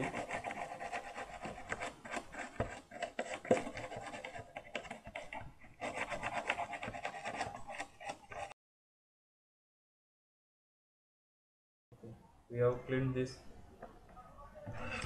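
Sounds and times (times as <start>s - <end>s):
scratchy scrubbing strokes: 0.0s - 8.6s.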